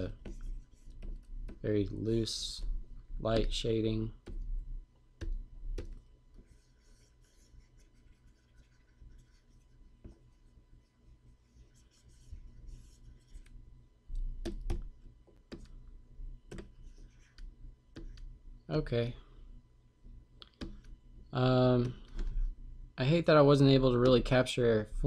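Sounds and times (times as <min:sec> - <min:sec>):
stylus scratching on screen: 0:00.0 - 0:01.8, 0:05.3 - 0:13.6, 0:16.5 - 0:18.4.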